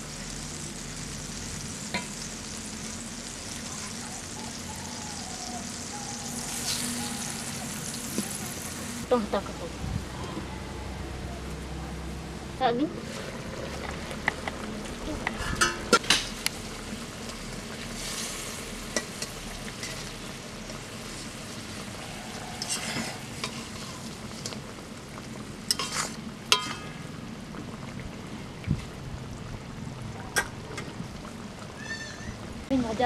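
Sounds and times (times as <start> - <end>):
fish frying sizzle: 0.0 - 33.0
metal spatula scraping a pan: 15.4 - 16.0, 22.3 - 24.6, 25.7 - 26.9.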